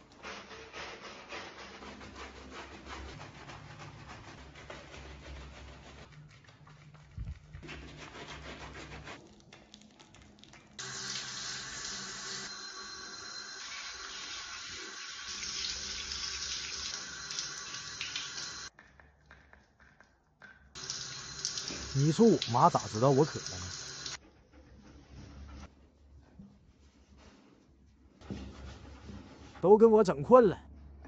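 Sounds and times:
sponge scrubbing dog's coat: 0.0s - 9.5s, 20.8s - 24.2s
shower head spraying water: 10.8s - 18.7s, 20.8s - 24.2s.

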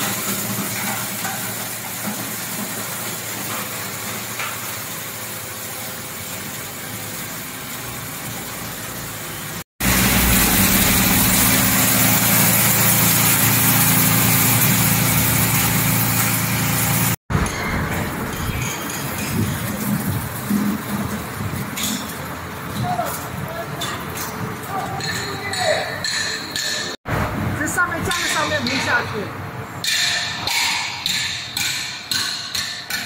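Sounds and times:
plastic granulator running: 0.0s - 17.2s
low motor hum: 9.8s - 17.2s.

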